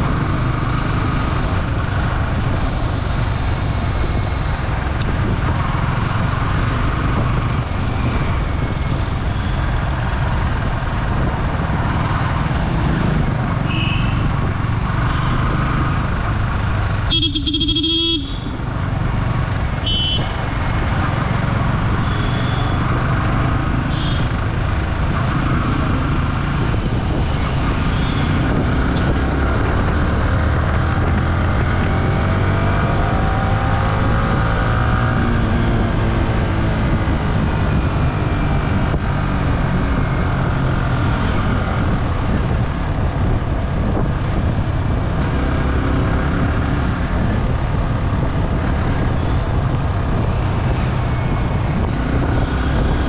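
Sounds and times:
wind rush on camera: 1.0 - 16.8, 24.4 - 53.0
motorcycle engine accelerating: 10.1 - 19.7, 20.5 - 53.0.

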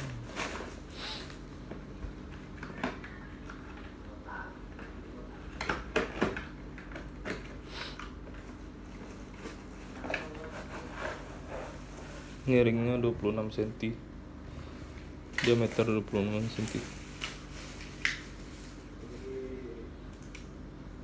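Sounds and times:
plastic wrap rustling: 15.3 - 19.0.

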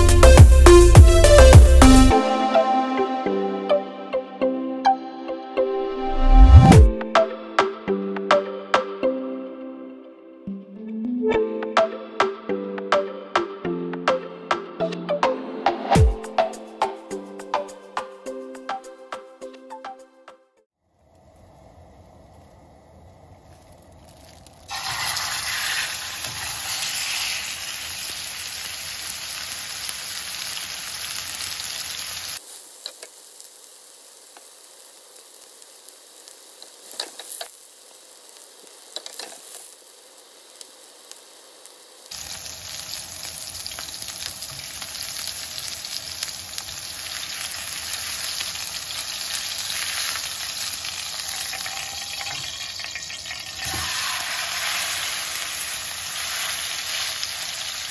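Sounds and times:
meat sizzling in a frying pan: 24.1 - 57.9.

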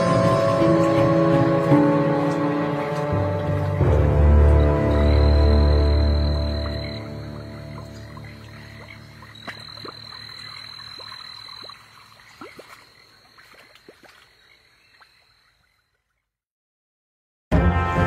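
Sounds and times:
synth music: 0.0 - 10.2
frogs croaking: 3.8 - 16.3.

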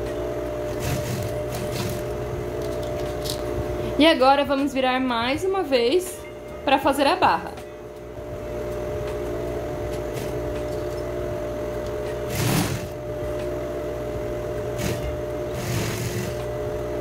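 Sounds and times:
sewing machine running: 0.7 - 3.4, 10.0 - 11.1, 11.9 - 13.1, 14.5 - 16.5.

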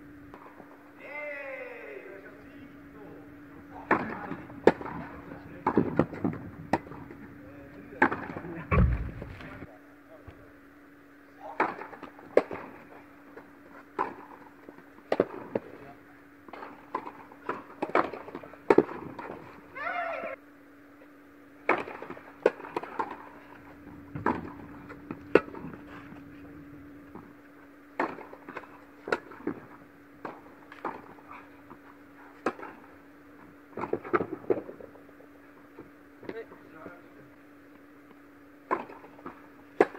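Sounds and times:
steady low hum: 0.0 - 39.9
racket hitting tennis ball: 3.8 - 7.2, 16.5 - 19.5, 21.6 - 23.5, 24.2 - 25.9, 28.0 - 32.9, 38.7 - 39.9
tennis ball bouncing: 3.8 - 7.2, 16.5 - 19.4, 24.0 - 25.9, 27.1 - 31.8, 32.4 - 32.8, 38.6 - 39.9.

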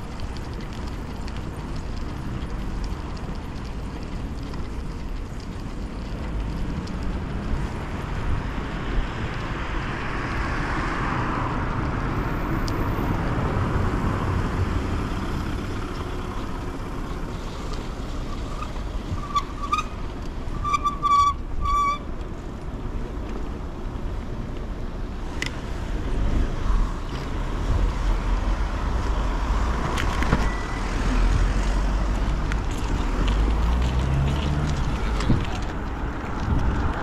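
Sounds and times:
street traffic: 0.0 - 37.0
vehicle passing by: 30.5 - 37.0.

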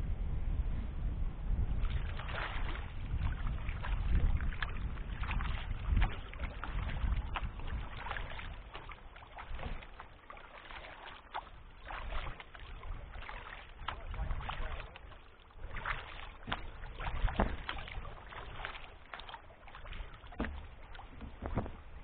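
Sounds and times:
low rumble: 0.0 - 8.7
paddle splashes and drips: 1.8 - 22.0.

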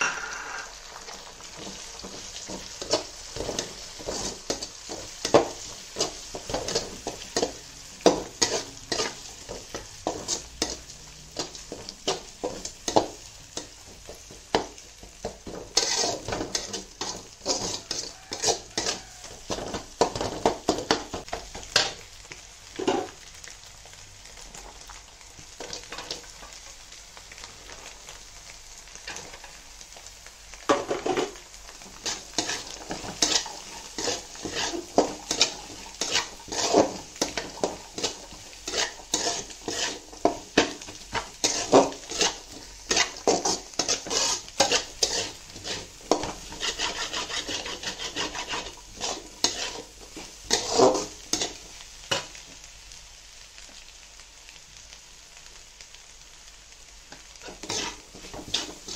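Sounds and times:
vegetables sizzling: 0.0 - 58.9
spatula scraping metal pan: 2.0 - 13.8, 14.5 - 21.0, 30.8 - 52.2, 57.4 - 58.9.

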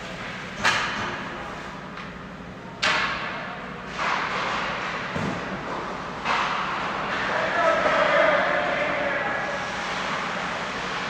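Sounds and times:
puck banging against rink boards: 3.9 - 8.7
rush of hockey play: 3.9 - 11.0.

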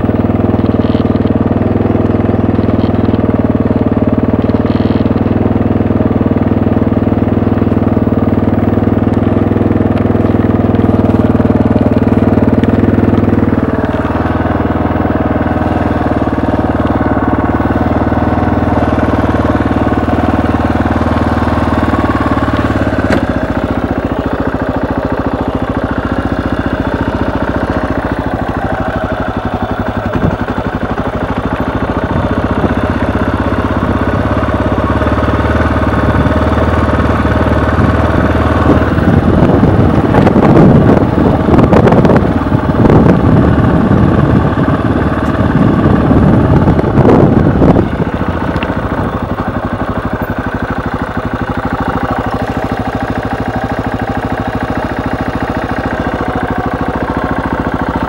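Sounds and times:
motorcycle engine running: 0.0 - 58.0
rough rushing noise: 37.3 - 58.0.

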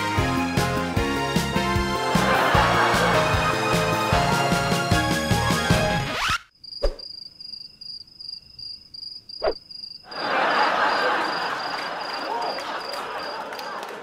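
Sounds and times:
crickets chirping: 6.5 - 13.8.

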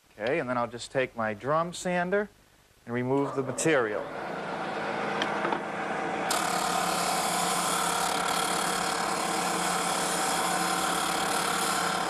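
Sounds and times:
sander motor hum: 4.9 - 12.0
sanding drum grinding wood: 6.4 - 12.0.

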